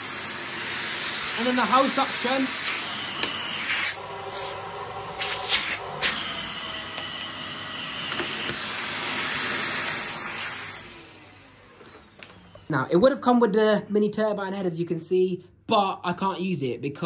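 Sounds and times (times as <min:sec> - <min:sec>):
vacuum cleaner running: 0:00.0 - 0:12.9
vacuum motor winding down: 0:00.0 - 0:12.9.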